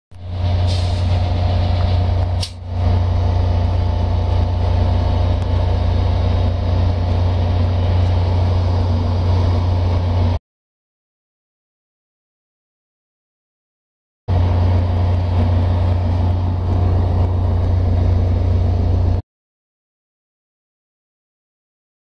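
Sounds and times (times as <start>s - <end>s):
diesel locomotive engines droning: 0.1s - 10.4s, 14.3s - 19.2s.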